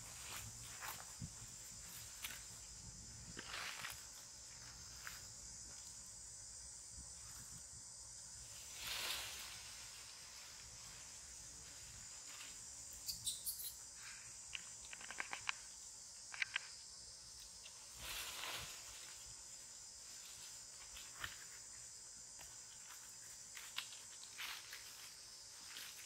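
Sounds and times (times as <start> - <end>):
insects buzzing: 0.0 - 26.0.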